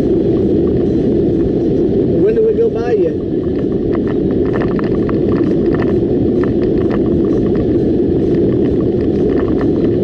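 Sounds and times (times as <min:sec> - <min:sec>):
car road and engine rumble: 0:00.0 - 0:10.0
small irregular clicks: 0:03.4 - 0:10.0.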